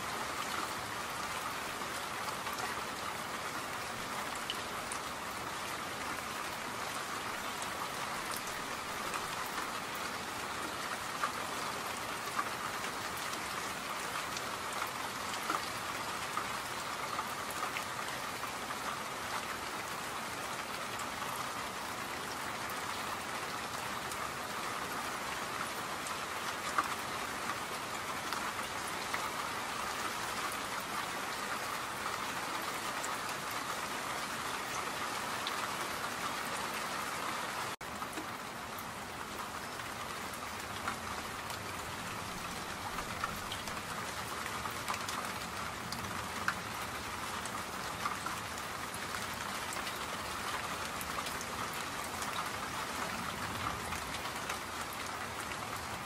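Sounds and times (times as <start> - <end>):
rain pattering: 0.0 - 56.0.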